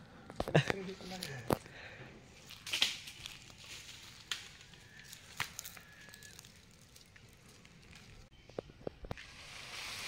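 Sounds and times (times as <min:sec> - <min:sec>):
footsteps on dry leaves: 0:00.6 - 0:01.7, 0:02.3 - 0:08.3.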